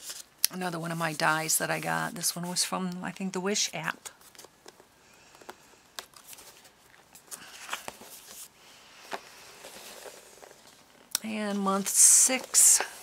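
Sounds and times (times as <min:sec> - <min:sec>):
paper rustling: 0:06.0 - 0:10.9.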